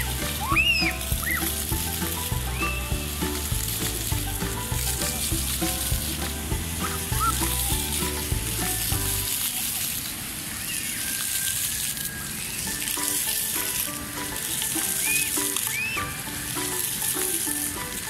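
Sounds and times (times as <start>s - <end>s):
music with deep bass: 0.0s - 9.3s
fountain water jets spraying: 0.0s - 18.0s.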